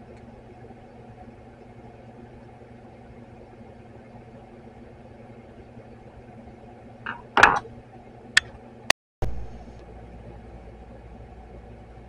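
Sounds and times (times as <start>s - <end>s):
low steady hum: 0.0s - 12.0s
tools clattering on workbench: 7.1s - 7.7s.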